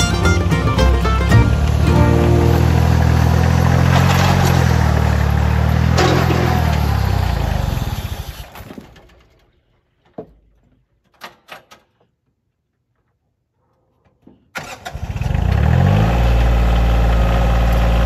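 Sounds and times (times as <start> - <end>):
tractor engine running: 0.0 - 8.4.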